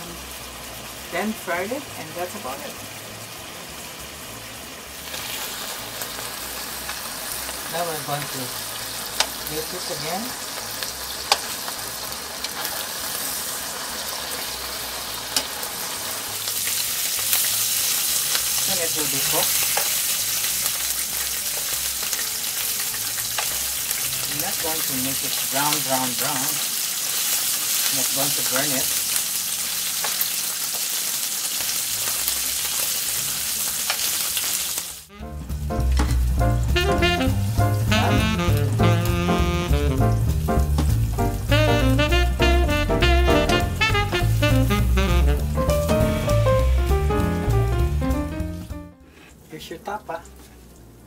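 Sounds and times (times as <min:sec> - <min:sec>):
beef sizzling in frying pan: 0:00.0 - 0:51.0
music: 0:19.3 - 0:24.4, 0:35.1 - 0:49.2.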